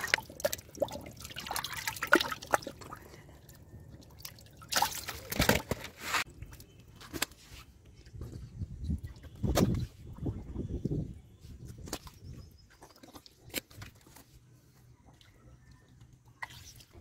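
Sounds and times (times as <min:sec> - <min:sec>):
splashing in muddy water: 0:00.0 - 0:07.2.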